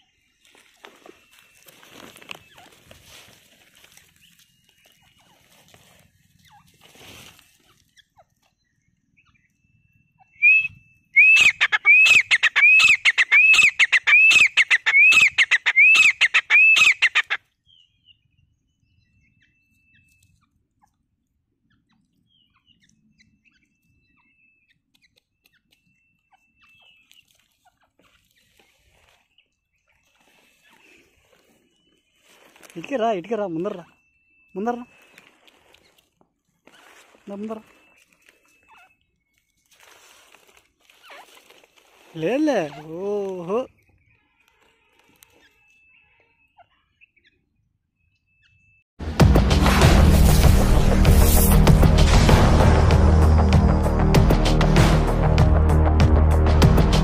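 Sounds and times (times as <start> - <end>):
bird calling shrill notes: 9.2 - 18.2, 21.8 - 27.2, 31.6 - 36.0, 36.6 - 39.8.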